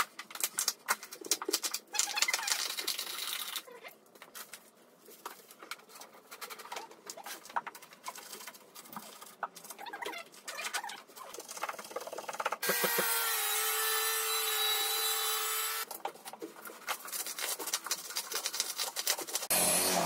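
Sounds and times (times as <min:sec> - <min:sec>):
power tool running: 0:12.6 - 0:15.8, 0:19.5 - 0:20.0.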